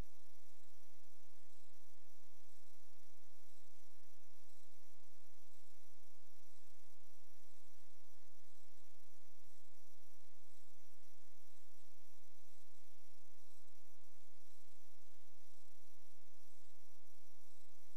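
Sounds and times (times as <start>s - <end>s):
faint steady hiss: 0.0s - 17.9s.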